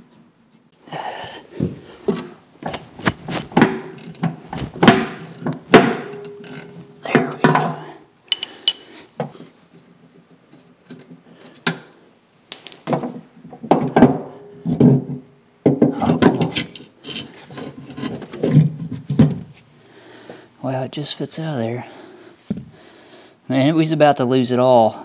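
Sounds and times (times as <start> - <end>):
metal clunks and knocks: 3.5 - 6.5
scraping against metal and wood: 16.2 - 19.6.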